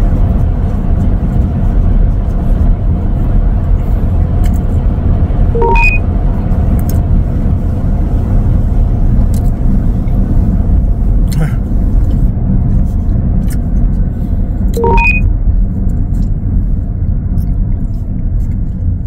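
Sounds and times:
road and tyre rumble: 0.0s - 19.0s
short electronic beep: 5.6s - 6.0s, 14.8s - 15.3s.

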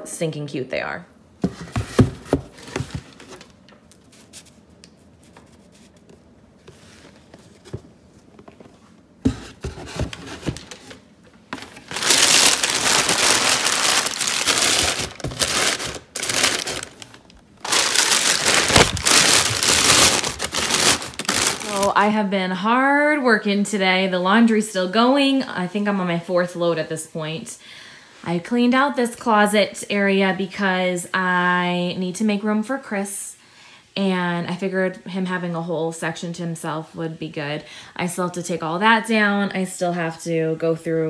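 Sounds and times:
packing paper crumpling: 11.6s - 22.0s.

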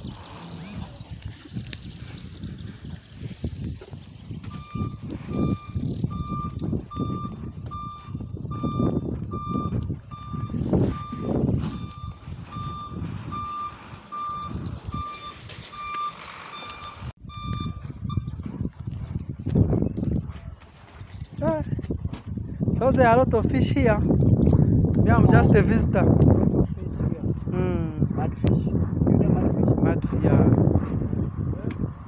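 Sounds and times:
electronic warning beeper: 4.5s - 18.6s.

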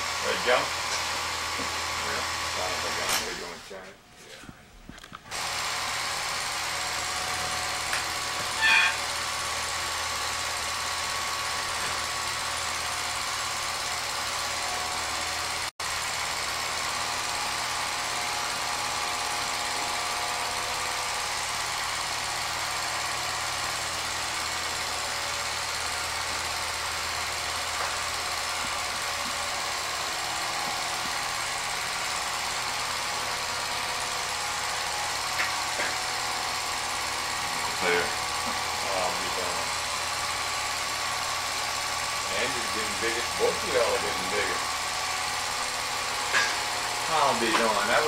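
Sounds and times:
film projector clattering: 0.2s - 3.6s, 5.0s - 48.0s
short high-pitched sound: 8.6s - 9.1s.

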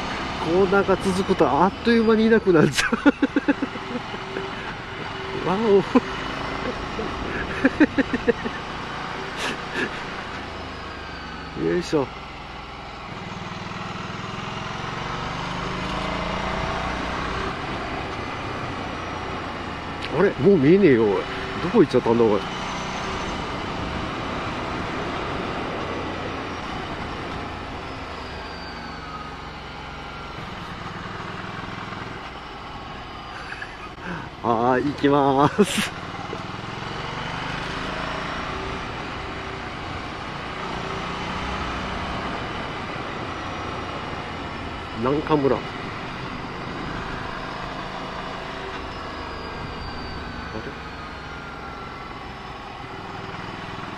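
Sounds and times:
motorcycle engine revving: 0.0s - 53.9s
motorcycle engine running: 12.1s - 21.5s.

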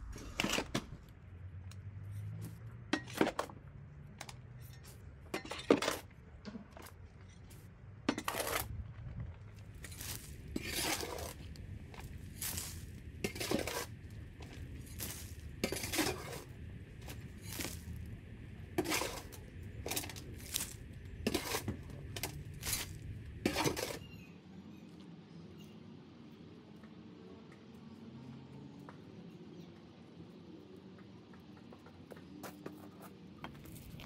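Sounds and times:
low steady rumble: 0.0s - 5.2s, 6.1s - 24.1s
garden tool scraping soil and stones: 4.6s - 6.1s, 6.8s - 8.8s, 9.6s - 24.3s, 32.7s - 34.0s.

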